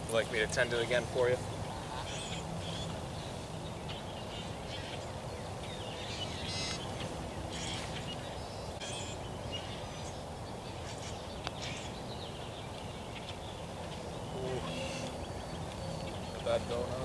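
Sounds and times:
birds calling: 0:00.0 - 0:17.0
steady outdoor hiss: 0:00.0 - 0:17.0.

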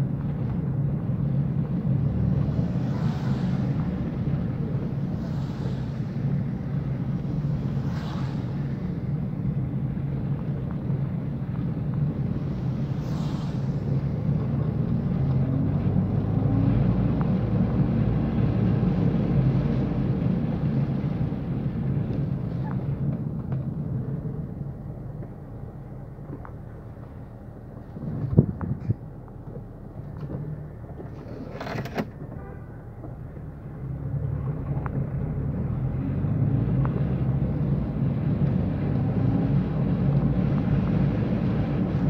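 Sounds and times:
engine and tyre rumble: 0:00.0 - 0:42.0.

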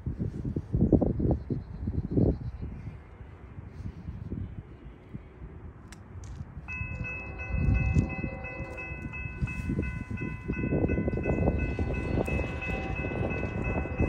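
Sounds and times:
gusty low rumble: 0:00.0 - 0:14.0
crossing bell ringing: 0:06.6 - 0:14.0.

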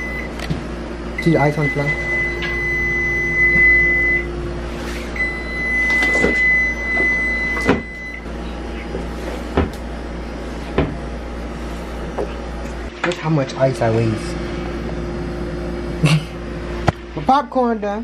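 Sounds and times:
low appliance hum: 0:00.0 - 0:18.0
high electronic tone: 0:01.2 - 0:04.6, 0:05.2 - 0:08.3
cabinet doors knocking: 0:10.8 - 0:11.0.

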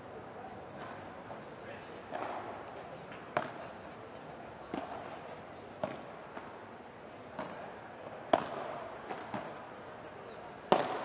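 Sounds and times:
ball hitting padel rackets: 0:02.1 - 0:03.6, 0:04.7 - 0:05.2, 0:05.8 - 0:06.6, 0:07.4 - 0:09.7, 0:10.7 - 0:11.0
ball bouncing on court: 0:08.3 - 0:09.6, 0:10.7 - 0:11.0.

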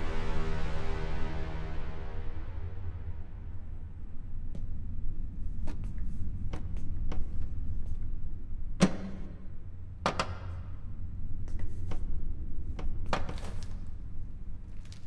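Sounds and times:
low rumbling drone: 0:00.0 - 0:10.0.

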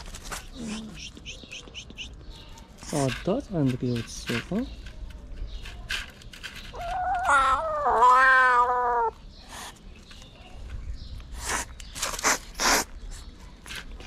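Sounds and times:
kitten yowling meow: 0:06.8 - 0:09.2
kitten hissing: 0:11.4 - 0:13.0.

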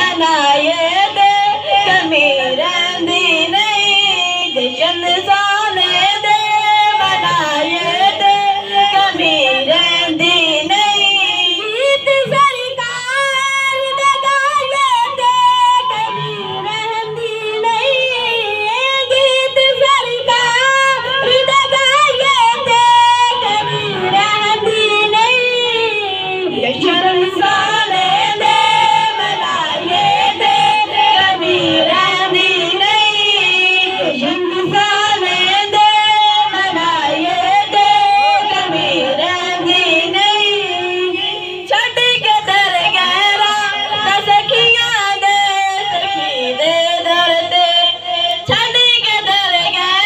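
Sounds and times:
boys singing into microphones: 0:00.0 - 0:50.0.

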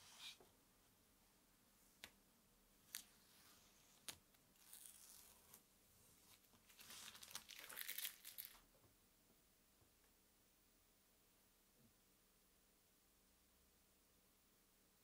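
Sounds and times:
masking tape peeling and crinkling: 0:04.6 - 0:05.6, 0:06.7 - 0:08.6.

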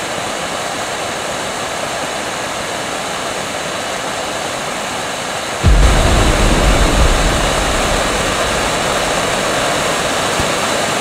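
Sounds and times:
deep rumble: 0:05.6 - 0:10.3.

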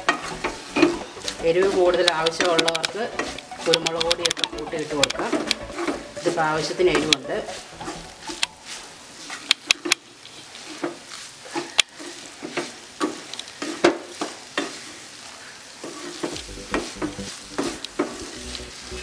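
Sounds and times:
spatula tapping pan: 0:00.0 - 0:10.0, 0:11.6 - 0:14.9
spatula scraping metal pan: 0:00.0 - 0:15.0
light sizzle: 0:00.0 - 0:19.0.

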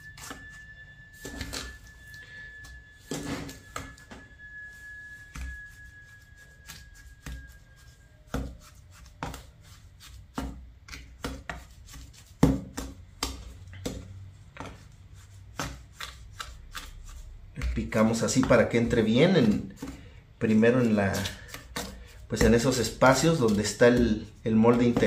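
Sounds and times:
hand tool knocking and scraping: 0:17.6 - 0:25.0.

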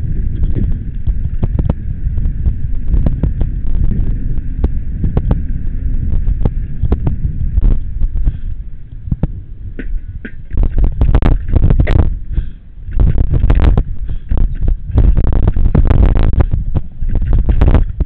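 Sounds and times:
bike tyres rumbling on concrete: 0:00.0 - 0:18.0
wind buffeting microphone: 0:00.0 - 0:18.0
bike rattling and knocking: 0:09.1 - 0:18.0.

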